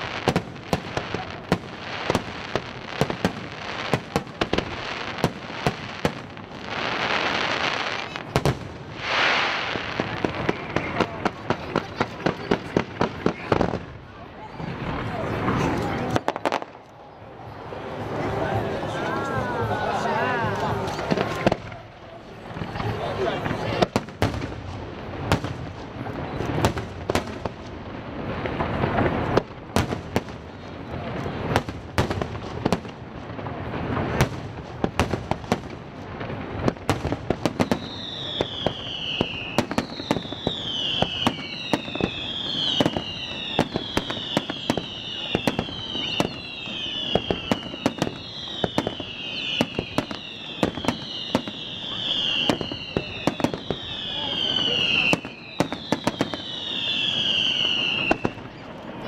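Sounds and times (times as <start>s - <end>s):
falling firework whistles: 0.0s - 11.1s, 36.9s - 58.7s.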